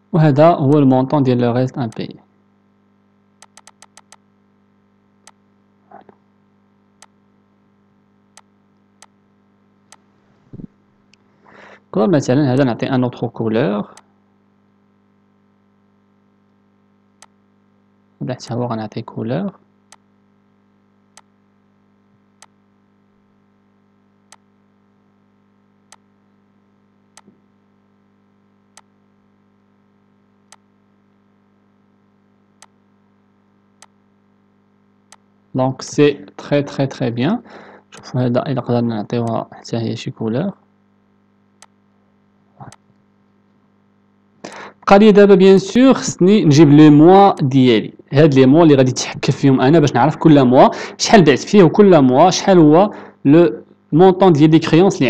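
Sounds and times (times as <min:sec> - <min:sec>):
faint electrical hum: 0:00.0 - 0:55.0
computer mouse clicks: 0:03.4 - 0:04.2.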